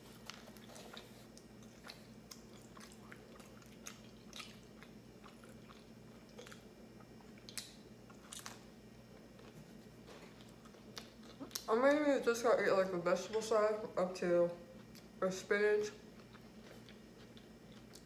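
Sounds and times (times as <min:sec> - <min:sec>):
low steady hum: 0:00.0 - 0:18.0
person chewing: 0:00.1 - 0:11.7, 0:14.8 - 0:15.2, 0:16.0 - 0:18.0.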